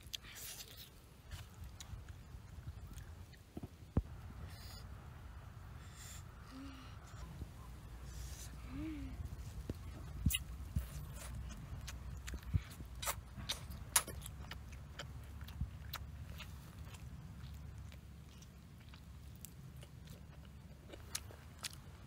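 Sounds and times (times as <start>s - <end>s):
low steady rumble: 0.0s - 22.0s
person chewing and tearing meat: 9.9s - 22.0s.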